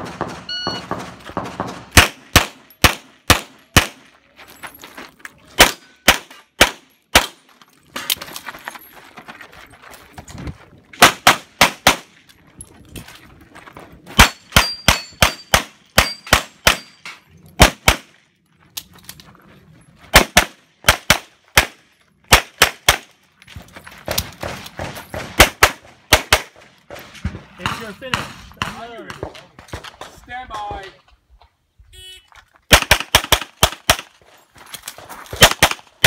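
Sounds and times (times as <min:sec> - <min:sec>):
rapid handgun fire: 0:00.0 - 0:04.0, 0:32.7 - 0:34.1.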